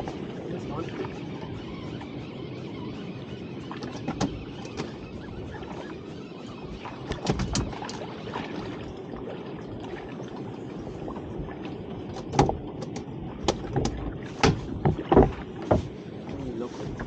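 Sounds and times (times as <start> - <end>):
sea wash: 0.0 - 17.0
wind: 0.0 - 17.0
sharp knocks and slaps: 12.2 - 15.9.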